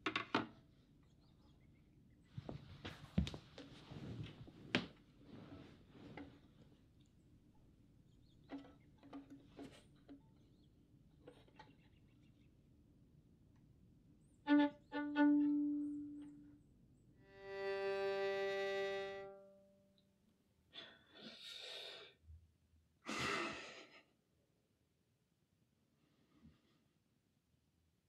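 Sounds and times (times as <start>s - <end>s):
violin single bowed notes: 14.5s - 16.5s, 17.2s - 20.0s.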